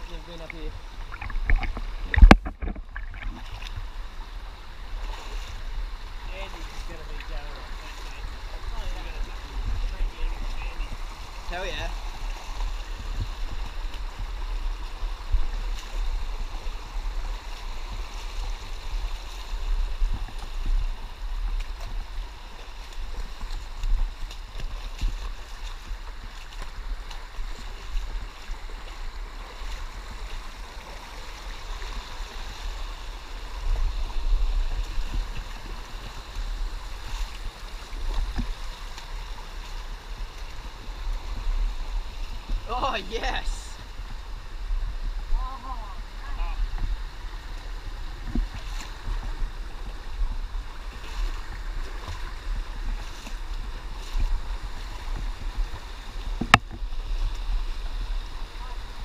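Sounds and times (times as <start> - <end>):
low rumble on microphone: 0.0 - 29.3
creek water running: 0.0 - 59.0.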